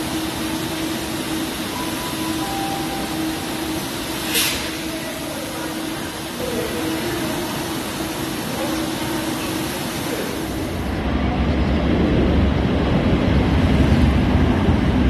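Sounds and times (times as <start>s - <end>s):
train equipment humming: 0.0s - 15.0s
short hiss: 4.2s - 4.8s.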